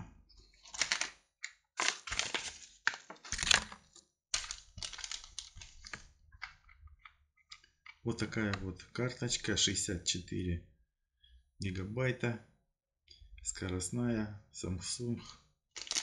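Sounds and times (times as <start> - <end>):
packaging crinkling and rustling: 0.6 - 1.2, 1.8 - 6.1, 15.8 - 16.0.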